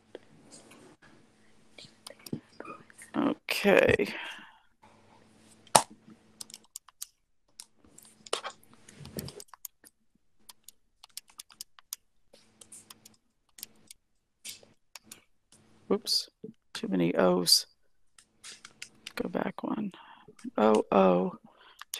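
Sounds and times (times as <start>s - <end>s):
keyboard keys clicking: 6.4s - 7.7s, 10.5s - 12.0s, 12.6s - 15.2s.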